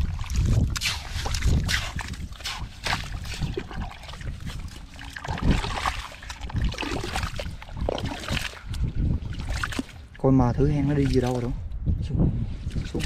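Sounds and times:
hands squelching in wet mud: 0.0 - 10.2.

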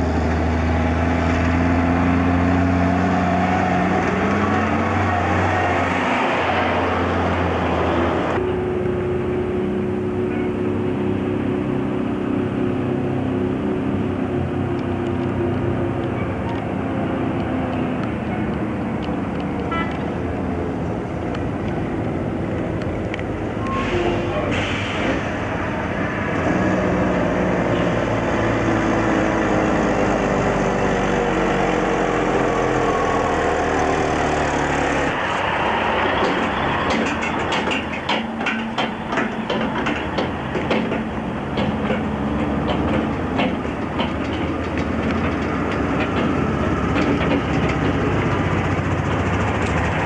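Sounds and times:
truck engine passing: 0.0 - 50.0
log trailer clattering past: 35.2 - 50.0.

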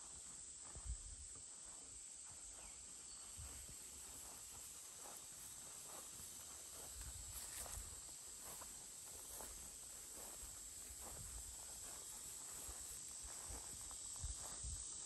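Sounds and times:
insects droning: 0.0 - 15.0
soft footsteps: 0.6 - 15.0.

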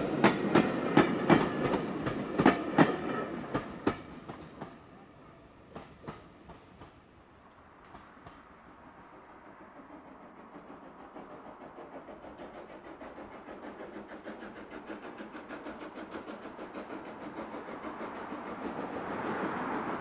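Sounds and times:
steam locomotive exhaust beats: 0.0 - 20.0.

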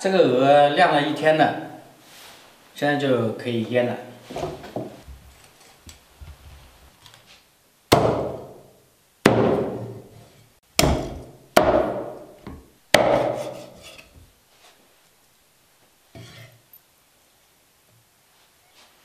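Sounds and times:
cleaver chopping on a block: 7.9 - 8.6, 9.3 - 9.9, 10.8 - 13.6.

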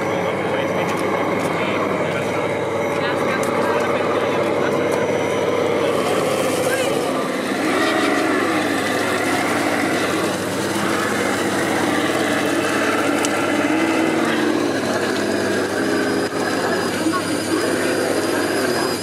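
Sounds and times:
electric motor and gearbox whining: 0.0 - 19.0.

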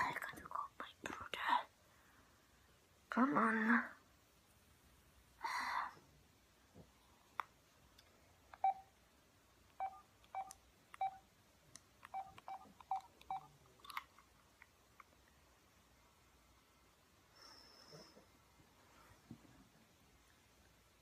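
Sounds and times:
phone keypad beeps: 8.6 - 8.9, 9.8 - 11.2, 12.1 - 13.5.

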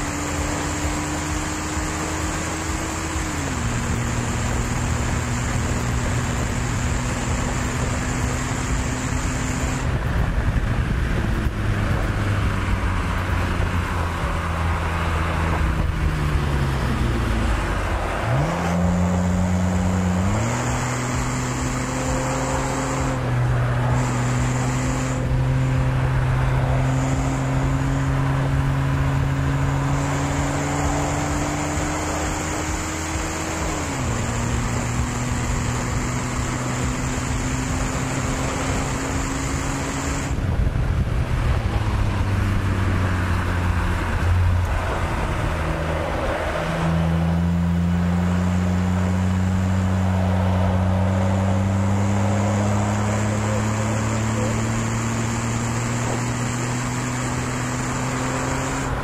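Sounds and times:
car engine running hard: 0.0 - 59.0
wind noise: 2.6 - 21.8, 36.8 - 47.4.

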